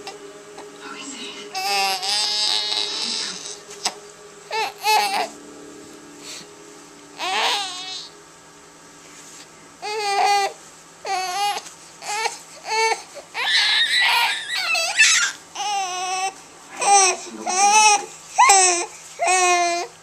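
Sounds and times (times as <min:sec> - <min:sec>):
infant crying: 0:01.5 - 0:05.3, 0:07.2 - 0:08.1, 0:09.8 - 0:20.0.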